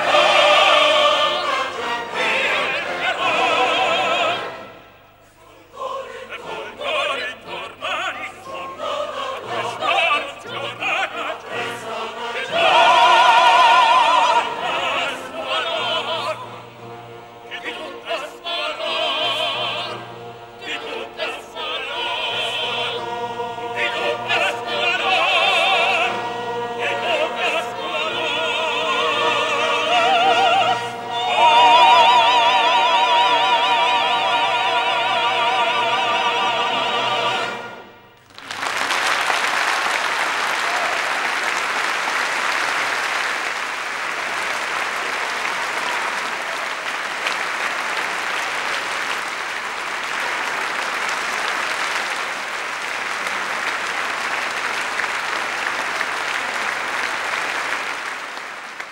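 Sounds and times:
opera singers with choir and orchestra: 0.0 - 38.2
audience applause: 38.2 - 58.9.

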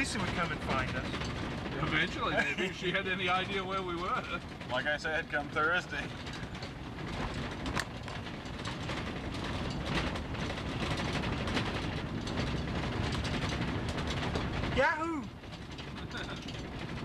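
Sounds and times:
flat tire clattering and rattling: 0.0 - 17.0
truck low rumble: 0.0 - 17.0.

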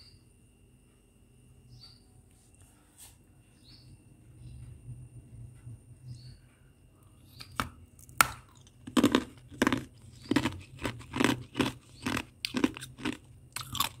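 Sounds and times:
chewing ice crunches: 7.4 - 14.0.

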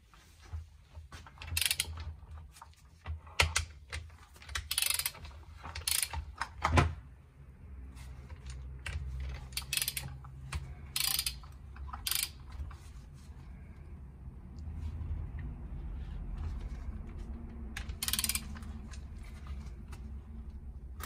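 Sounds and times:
ratchet wrench clicking: 1.5 - 2.0, 4.5 - 6.5, 8.8 - 12.5, 17.8 - 18.7.

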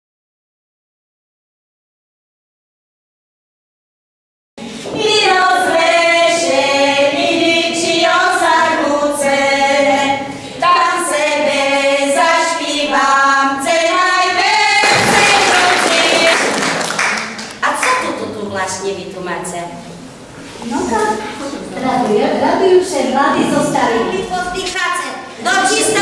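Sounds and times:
women singing unaccompanied: 4.7 - 16.7
crowd noise: 6.5 - 26.0.

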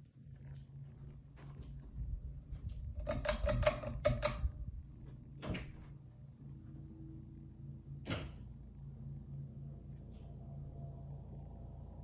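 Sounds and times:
ceiling fan hum: 0.0 - 12.0
sharp clicks and taps: 3.0 - 4.6.

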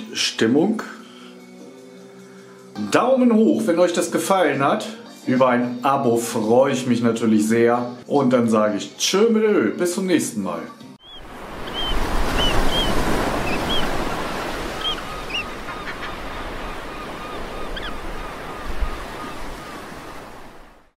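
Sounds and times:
chirping bird calls: 11.0 - 20.2
lower bird calls: 11.0 - 20.5
surf breaking on a beach: 11.2 - 20.9.

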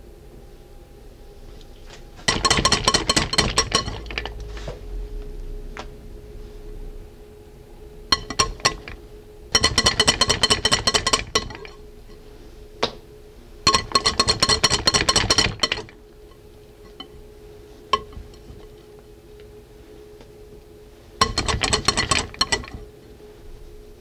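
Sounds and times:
whisk clinking on glass bowl: 2.3 - 4.3, 8.1 - 9.0, 9.6 - 11.9, 13.7 - 16.0, 21.2 - 22.8
whisk tapping bowl: 2.3 - 4.4, 8.1 - 9.0, 9.6 - 11.9, 13.7 - 17.2, 17.9 - 18.7, 21.2 - 22.9.

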